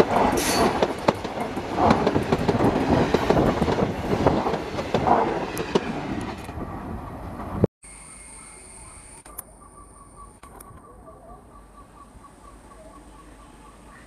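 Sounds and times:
wheels clattering over rail joints: 0.0s - 6.6s
train coaches rushing past: 0.0s - 7.7s.

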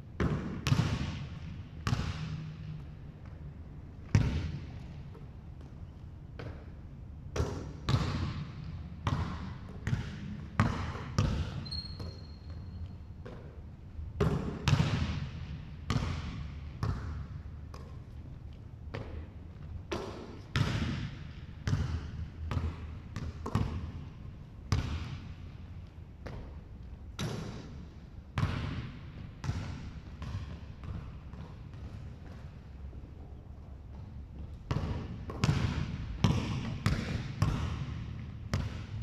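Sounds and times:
basketball bouncing on wooden floor: 9.0s - 12.6s, 15.9s - 18.0s, 19.9s - 24.0s, 28.4s - 32.6s, 33.9s - 39.0s
shoe squeak: 11.5s - 13.0s.

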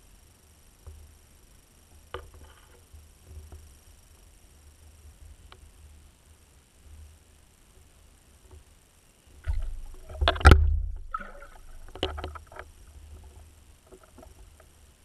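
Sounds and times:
muffled underwater knocks: 9.4s - 12.8s.

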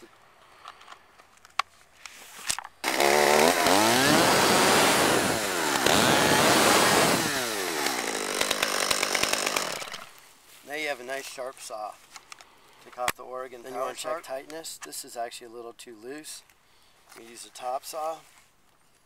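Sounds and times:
chainsaw engine revving: 2.8s - 10.2s.

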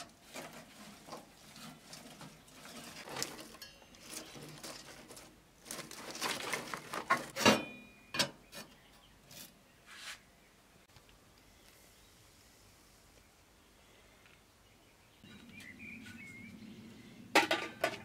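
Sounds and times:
twigs rustling and crackling: 0.0s - 7.4s.

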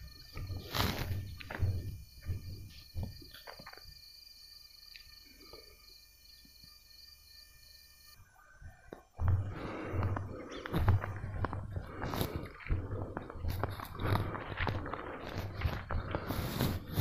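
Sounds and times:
footsteps through a cereal field: 0.0s - 3.9s, 8.7s - 17.0s
insect chirring: 0.0s - 17.0s.

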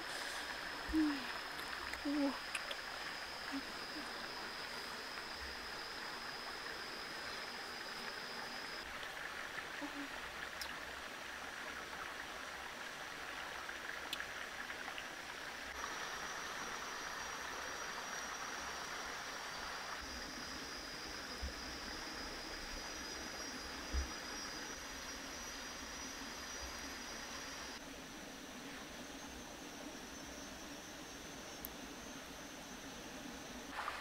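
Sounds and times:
stream flowing: 0.0s - 20.0s, 33.7s - 34.0s
thin high whine: 15.7s - 34.0s.

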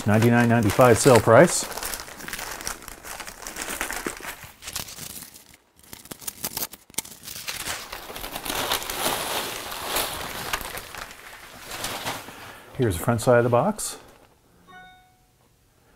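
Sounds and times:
paper tearing and crumpling: 0.0s - 12.6s.

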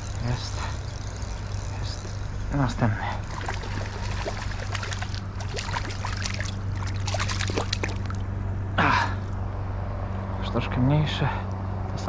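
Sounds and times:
steady low hum: 0.0s - 12.0s
fish splashing at water surface: 3.2s - 8.3s.

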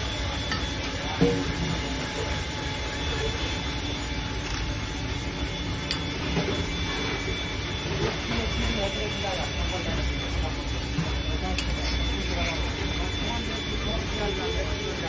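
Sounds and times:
rumble and hiss of food stall: 0.0s - 15.0s
faint voices: 7.8s - 15.0s.

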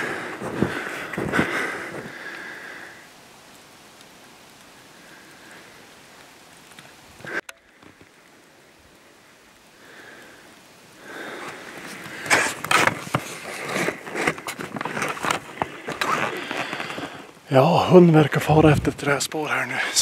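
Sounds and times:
footsteps crunching through snow: 0.0s - 2.2s, 11.4s - 17.3s
branches rustling: 0.0s - 20.0s
faint steady hiss: 0.0s - 20.0s.

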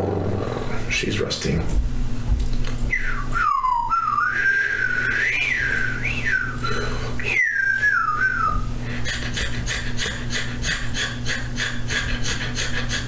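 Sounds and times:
low electrical hum: 0.0s - 13.0s
person whistling: 2.9s - 8.7s
breathy puffs: 8.8s - 13.0s.

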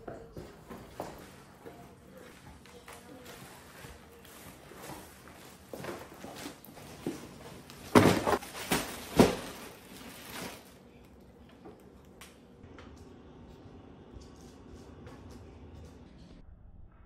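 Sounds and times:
shopping bags rustling: 0.6s - 11.1s
items knocking on counter: 7.9s - 9.6s.

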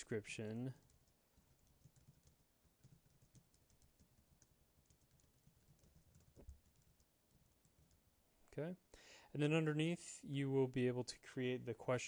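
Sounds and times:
typing on computer keyboard: 0.7s - 8.0s.

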